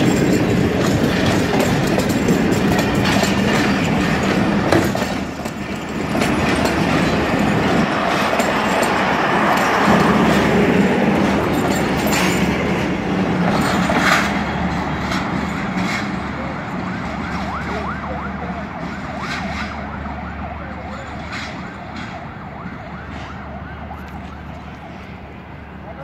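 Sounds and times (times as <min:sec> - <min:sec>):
wheel clicks over rail joints: 0:00.0 - 0:16.4
train coaches rolling over rails: 0:00.0 - 0:26.0.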